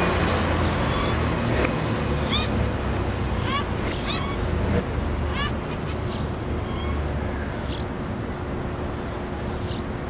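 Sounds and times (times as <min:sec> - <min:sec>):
faint steady hum: 0:00.0 - 0:10.0
low traffic rumble: 0:00.0 - 0:10.0.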